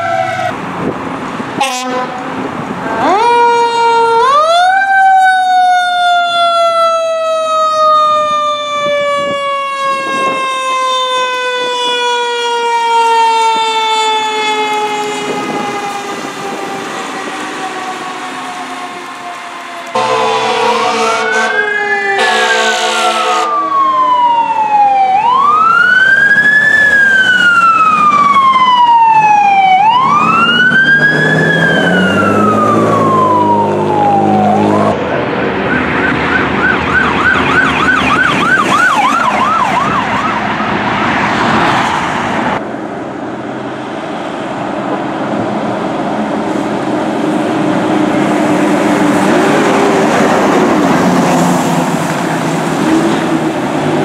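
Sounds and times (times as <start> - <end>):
wail siren: 0.0 - 0.6, 2.8 - 42.6, 47.6 - 54.0
passing fire engine: 0.0 - 54.0
vehicle horn blast: 1.6 - 2.2, 20.0 - 21.6, 22.2 - 23.5
fast warbling yelp siren: 2.9 - 40.8.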